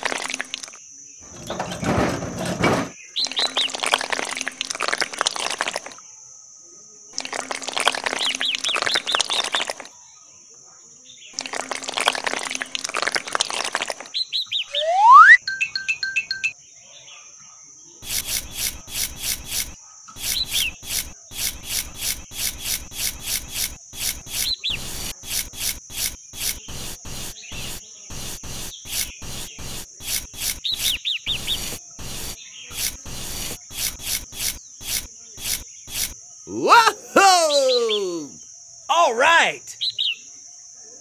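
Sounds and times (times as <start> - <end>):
plastic trowel scraping wet cement: 1.2 - 2.9
high chirring: 14.7 - 16.5.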